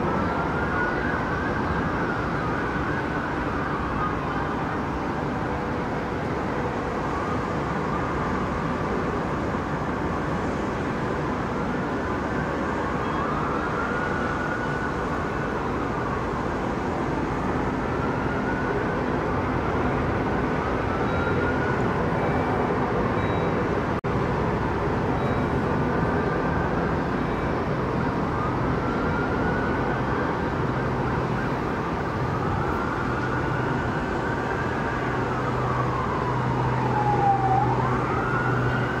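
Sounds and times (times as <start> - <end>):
siren wailing: 0.0 - 8.8, 11.1 - 23.6, 25.1 - 39.0
engine noise: 0.0 - 39.0.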